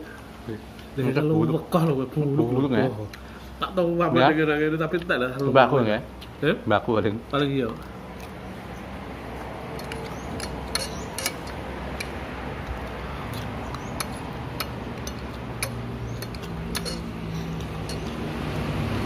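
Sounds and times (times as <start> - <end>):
low engine hum: 7.9 - 19.0
cutlery clinking on ceramic plate: 9.8 - 12.1, 13.8 - 18.2.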